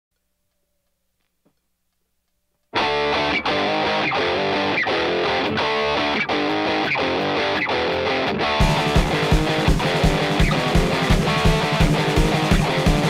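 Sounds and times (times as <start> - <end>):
electric guitar strumming over beat: 2.8 - 13.0.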